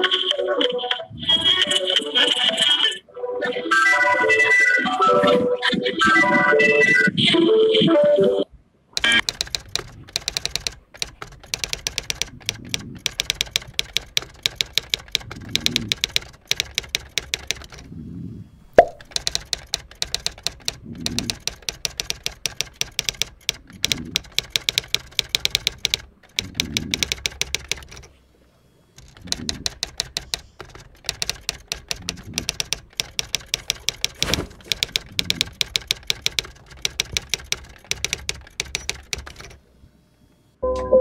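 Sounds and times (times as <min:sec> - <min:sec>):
typewriter keys clacking: 0:09.0 - 0:17.9, 0:19.0 - 0:28.1, 0:29.0 - 0:39.6.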